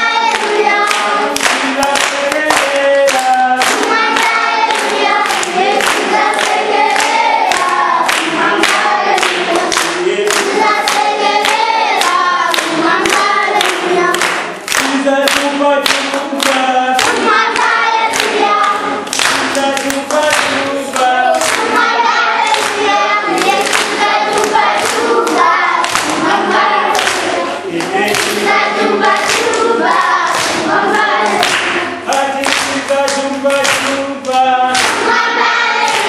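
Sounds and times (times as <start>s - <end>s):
children singing in chorus: 0.0s - 36.0s
handclapping on the beat: 0.0s - 36.0s.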